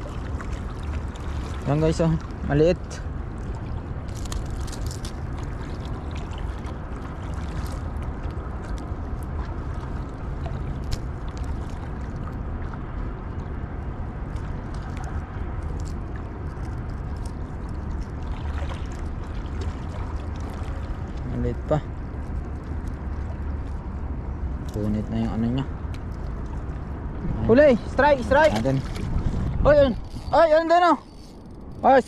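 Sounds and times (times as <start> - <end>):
water lapping against rocks: 0.0 - 30.1
wind rumble on microphone: 0.0 - 32.0
light clicks of handling fish: 3.4 - 6.8, 7.4 - 12.4, 14.3 - 21.2.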